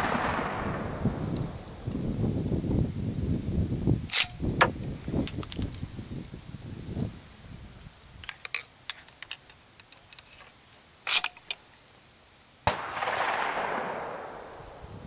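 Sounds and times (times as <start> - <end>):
sharp clatter: 4.1 - 5.9
gunshot with echo: 12.7 - 14.9.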